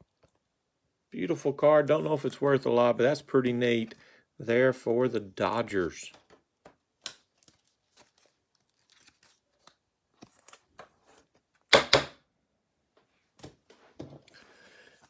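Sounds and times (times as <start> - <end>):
plastic sleeve rustling: 7.2 - 11.6.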